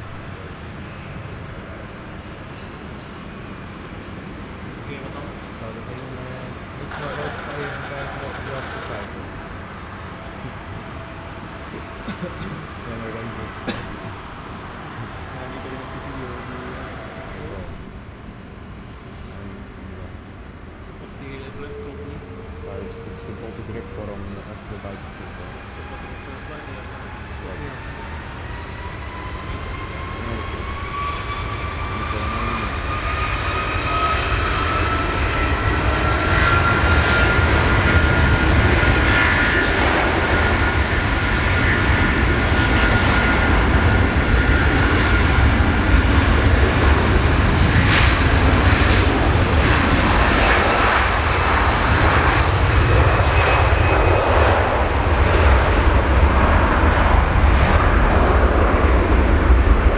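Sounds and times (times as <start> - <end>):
jet engines at takeoff thrust: 0.0 - 59.9
jet fan whine climbing in pitch: 0.0 - 59.9.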